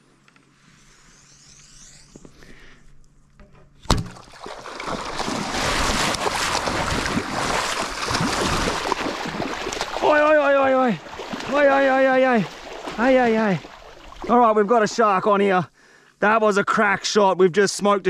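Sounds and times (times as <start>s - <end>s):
bow shot snap: 3.8s - 4.3s
feet splashing through water: 3.9s - 14.5s.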